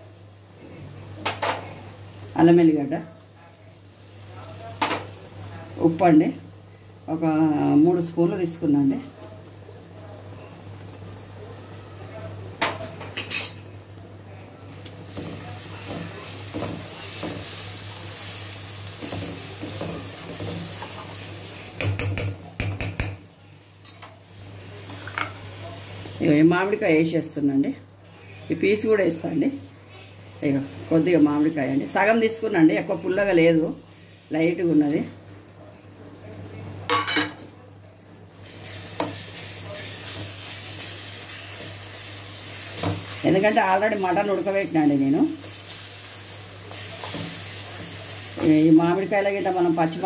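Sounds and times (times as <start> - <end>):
onions sizzling in oil: 0.0 - 50.0
spoon stirring and scraping pan: 14.8 - 23.2, 38.4 - 43.9, 45.4 - 48.6
spoon knocking against pan: 21.8 - 23.2.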